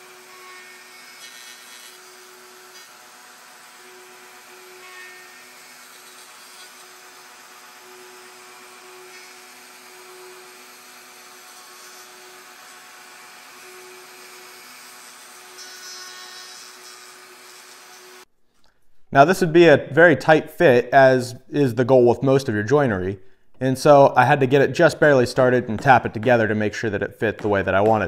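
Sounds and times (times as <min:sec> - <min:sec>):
router bit cutting wood: 0:00.0 - 0:18.2
router motor hum: 0:00.0 - 0:18.2.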